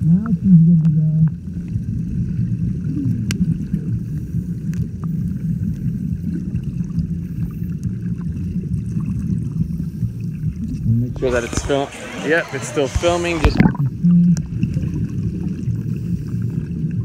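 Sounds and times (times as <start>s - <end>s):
sea water rumbling and sloshing: 0.0s - 17.0s.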